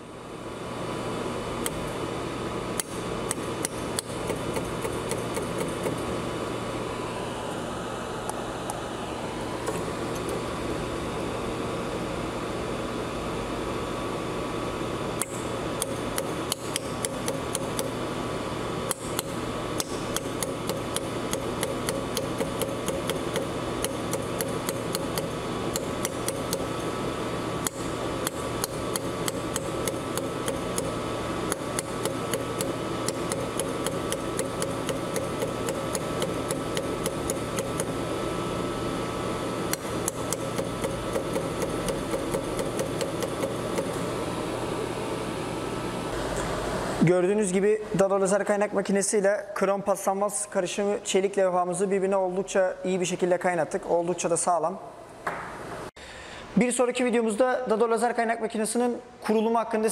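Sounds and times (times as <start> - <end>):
machine humming: 0.0 - 49.1
laser welder ticking: 1.6 - 2.0, 2.7 - 6.1, 15.2 - 38.5, 39.1 - 44.2.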